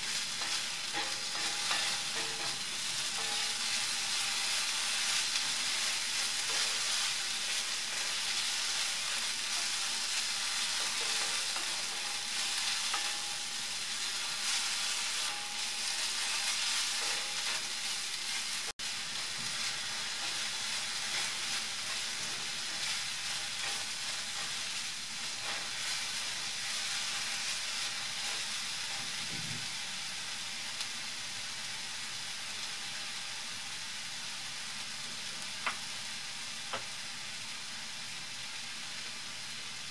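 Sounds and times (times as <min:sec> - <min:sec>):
onions sizzling in a skillet: 0:00.0 - 0:39.9.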